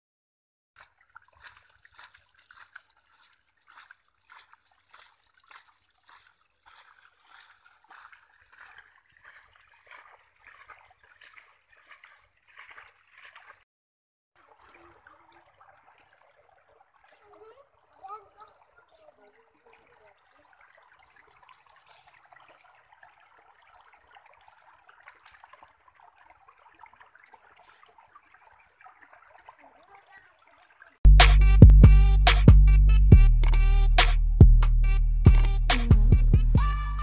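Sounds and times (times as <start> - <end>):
rainwater trickling over mud: 0.8 - 13.6, 14.4 - 31.0.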